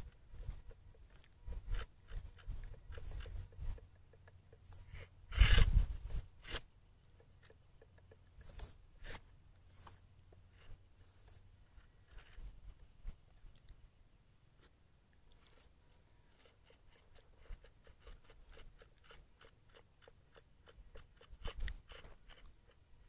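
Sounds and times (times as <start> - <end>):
tyres scraping loose dirt: 0.0 - 12.7.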